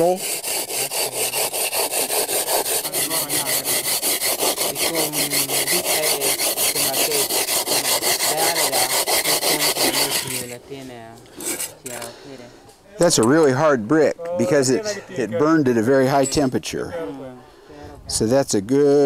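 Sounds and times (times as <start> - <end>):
hand saw sawing brick: 0.0 - 10.6, 11.4 - 12.0.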